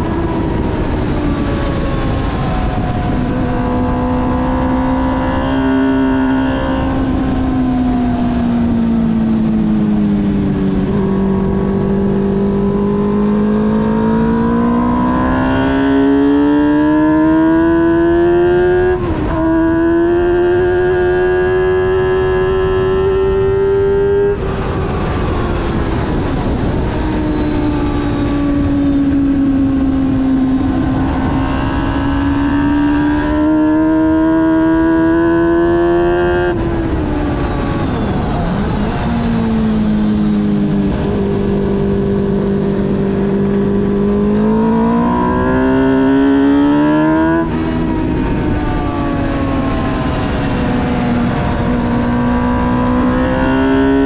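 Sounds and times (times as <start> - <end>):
race car engine at high revs: 0.0 - 54.0.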